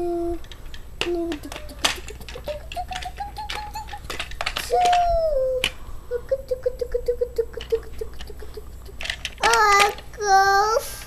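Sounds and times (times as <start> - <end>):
child vocalizing: 0.0 - 0.4, 1.1 - 8.7
plastic toy pieces clacking: 0.4 - 5.8, 7.6 - 10.1.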